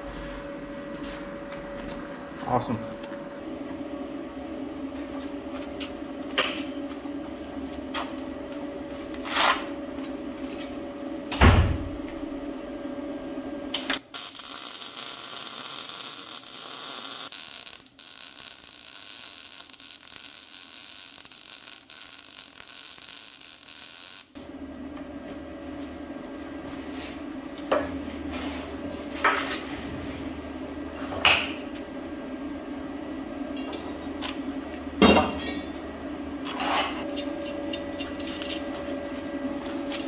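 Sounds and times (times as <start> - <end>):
steady hum: 0.0 - 40.0
arc welding crackling hiss: 13.7 - 24.4.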